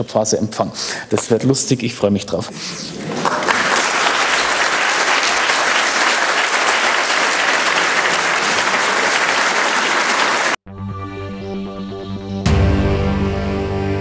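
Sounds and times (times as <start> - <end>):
audience applauding: 3.0 - 10.6.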